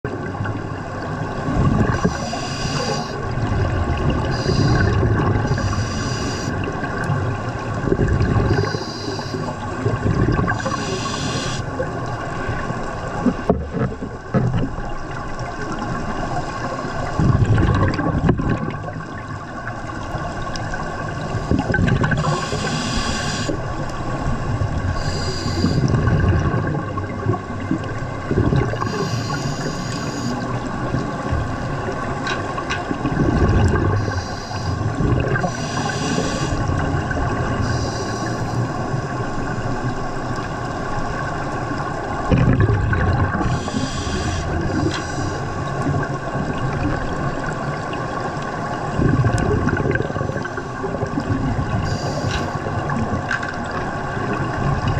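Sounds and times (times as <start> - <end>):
gurgling exhaled bubbles: 0.1 - 54.9
regulator hissing inhalations: 1.9 - 3.2, 4.3 - 6.6, 8.6 - 9.6, 10.6 - 11.7, 22.2 - 23.6, 25.0 - 25.9, 28.9 - 30.4, 34.0 - 36.6, 37.6 - 38.7, 43.5 - 45.6.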